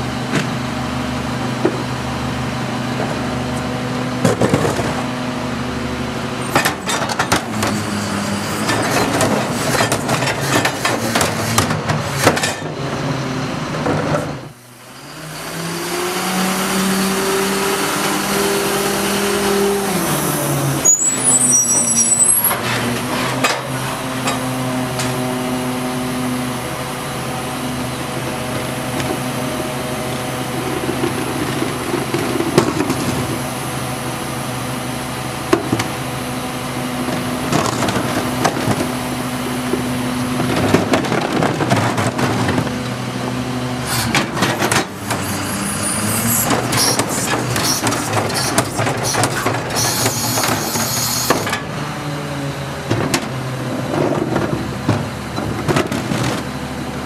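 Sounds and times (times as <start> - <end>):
hydraulic whine: 0.0 - 41.5, 42.4 - 52.6
garbage truck engine humming: 0.0 - 57.0.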